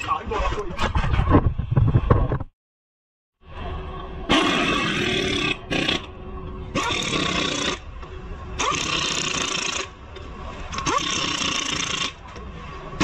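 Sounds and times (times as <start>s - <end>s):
air motor whine: 3.4s - 13.0s.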